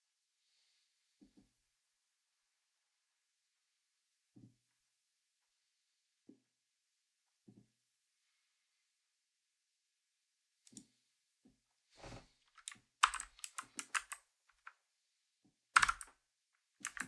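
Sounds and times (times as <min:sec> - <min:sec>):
typing on mechanical keyboard: 0:12.6 - 0:14.7, 0:15.8 - 0:16.1.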